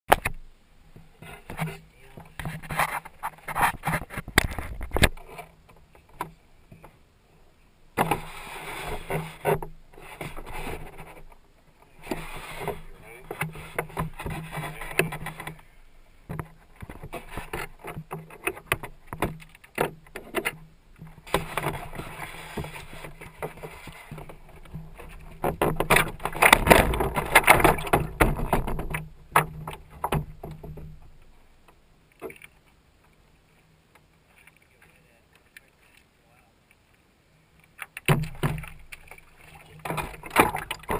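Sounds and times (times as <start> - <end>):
water sloshing against boat hull: 8.0 - 31.4, 37.6 - 40.9.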